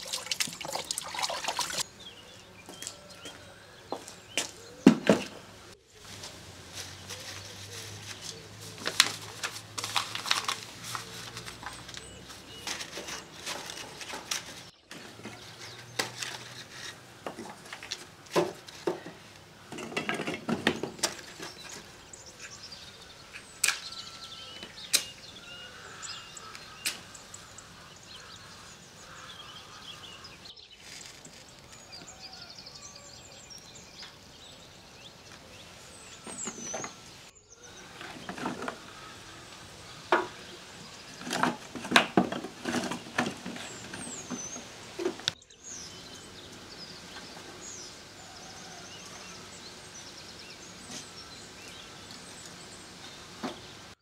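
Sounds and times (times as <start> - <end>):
faint birds chirping: 0.0 - 54.0
paper crinkling: 6.0 - 17.0.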